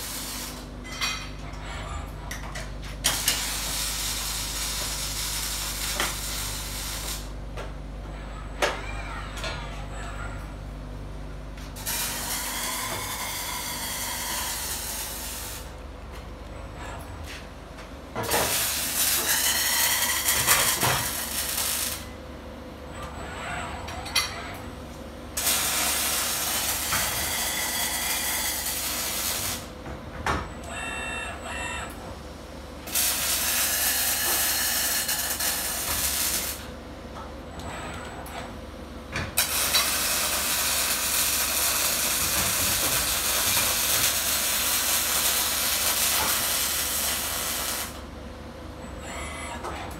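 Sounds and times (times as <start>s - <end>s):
arc welding hiss and crackle: 0.0s - 0.7s, 3.0s - 7.4s, 11.8s - 15.7s, 18.3s - 22.1s, 25.4s - 29.7s, 32.9s - 36.7s, 39.4s - 48.0s.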